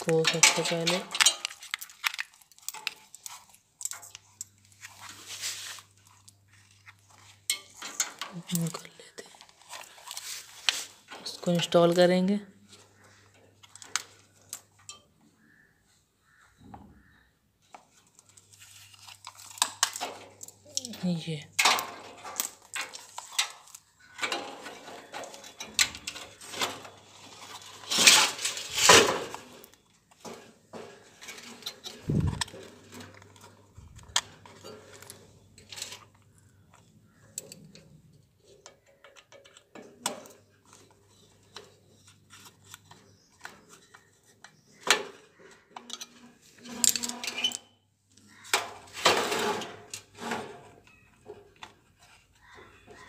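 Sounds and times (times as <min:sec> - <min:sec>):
metallic clinks and scrapes: 0:00.0 - 0:08.9, 0:45.4 - 0:47.8.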